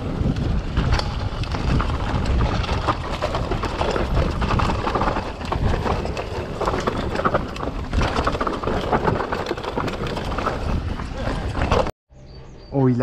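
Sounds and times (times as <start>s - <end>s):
wind rushing on microphone: 0.0s - 9.2s
bike rattling: 0.0s - 11.9s.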